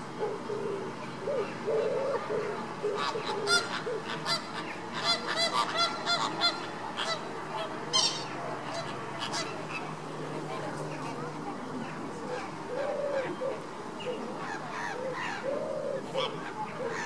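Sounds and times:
flamingos honking: 2.0 - 10.6.

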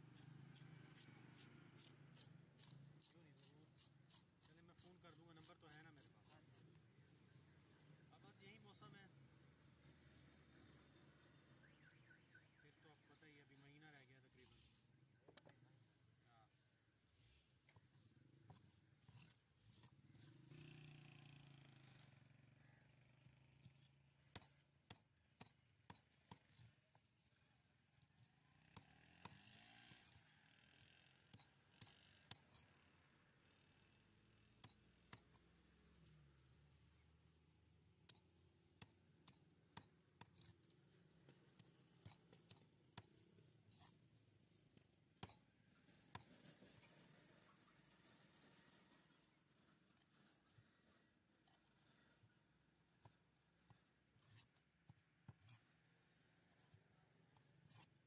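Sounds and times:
knife scraping fish scales: 0.5 - 6.7, 17.8 - 20.3, 28.0 - 32.9, 39.2 - 45.4, 57.6 - 58.0.

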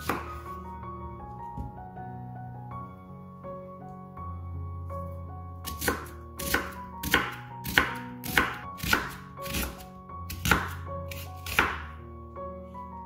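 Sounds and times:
knife slicing onion on wooden board: 0.0 - 0.4, 5.7 - 11.9
soft piano music: 0.0 - 13.0.

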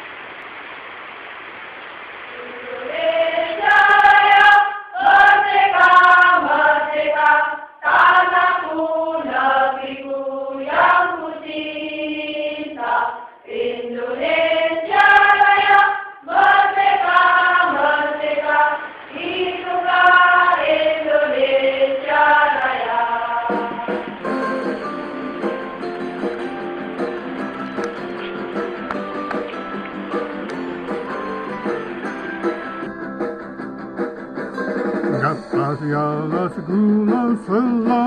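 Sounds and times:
women's choir singing: 2.3 - 24.2.

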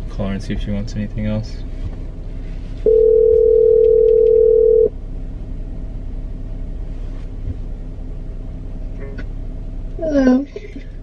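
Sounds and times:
low hum of car interior: 0.0 - 11.0
telephone ringback tone: 2.9 - 4.9.

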